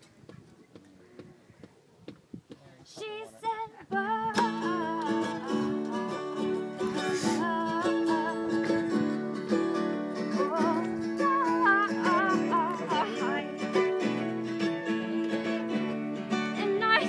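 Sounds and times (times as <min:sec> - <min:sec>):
woman singing: 0:02.9 - 0:09.6, 0:10.3 - 0:17.0
acoustic guitar: 0:03.0 - 0:17.0.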